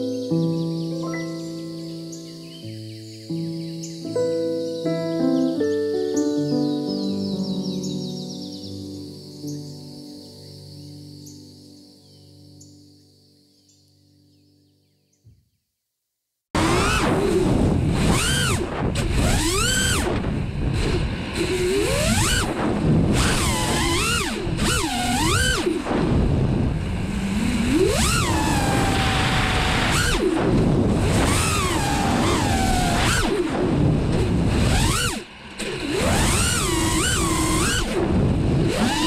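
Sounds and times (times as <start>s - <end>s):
drone motors whining: 16.6s - 39.0s
wind rush: 16.6s - 39.0s.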